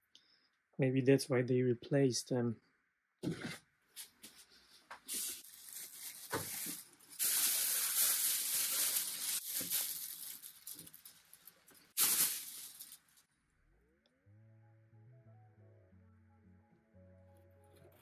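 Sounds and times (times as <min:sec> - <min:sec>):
plastic sheeting crinkling: 0:04.0 - 0:13.3.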